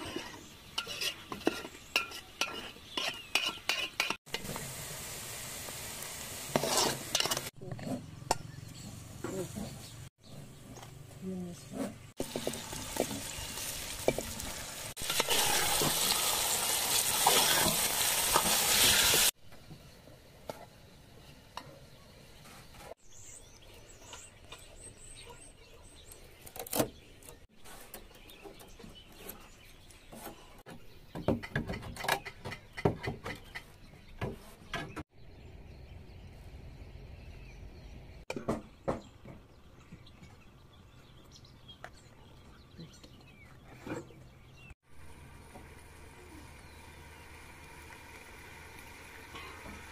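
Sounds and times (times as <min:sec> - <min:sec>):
chicken sizzling in hot oil: 0:03.4 - 0:07.6, 0:12.2 - 0:19.4, 0:45.0 - 0:49.9.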